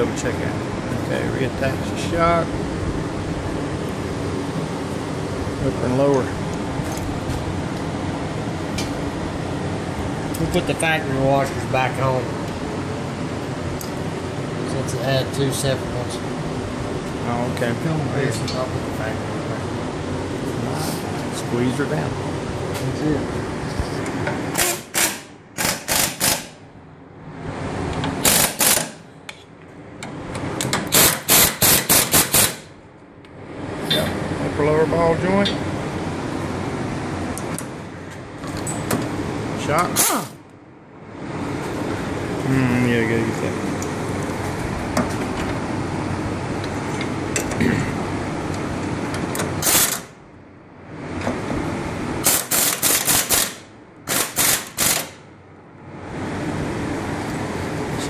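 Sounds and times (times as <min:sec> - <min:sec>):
impact wrench rattling: 0:24.5 - 0:26.6
impact wrench rattling bursts: 0:24.5 - 0:26.6, 0:28.2 - 0:29.0, 0:30.8 - 0:32.7, 0:49.4 - 0:50.1, 0:52.2 - 0:55.2.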